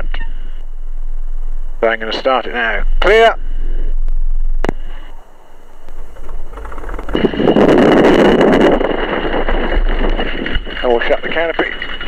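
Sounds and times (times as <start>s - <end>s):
starter cranking engine: 6.0s - 12.0s.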